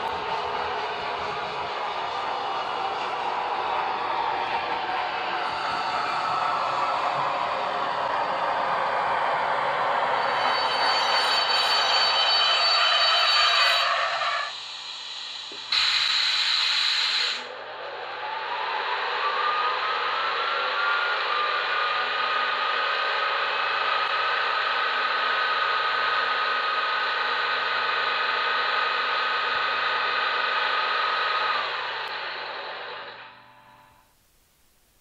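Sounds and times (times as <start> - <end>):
hiss of air: 14.0 - 17.5.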